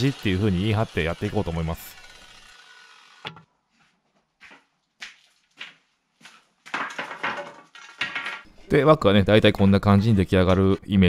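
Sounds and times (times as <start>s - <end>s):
wooden boards knocking: 6.7s - 8.5s.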